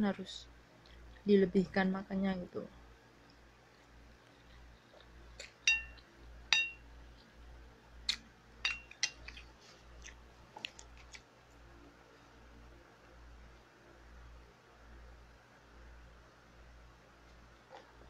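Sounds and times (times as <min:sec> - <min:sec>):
metal spoon clinking on dish: 0:05.6 - 0:06.8, 0:08.6 - 0:09.3.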